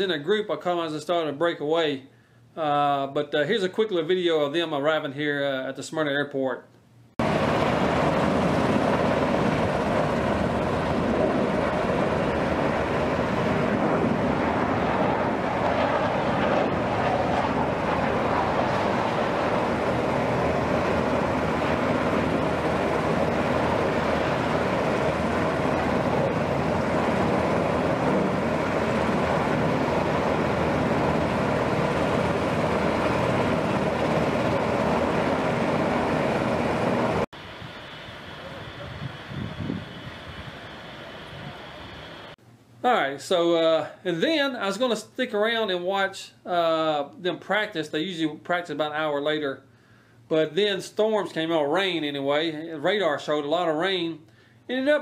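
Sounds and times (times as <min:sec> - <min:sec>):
jet aircraft overhead: 0:07.2 - 0:42.4.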